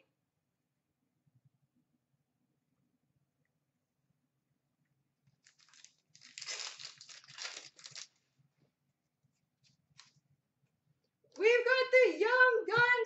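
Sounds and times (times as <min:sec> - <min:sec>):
foil wrapper tearing and crinkling: 0:05.4 - 0:08.2.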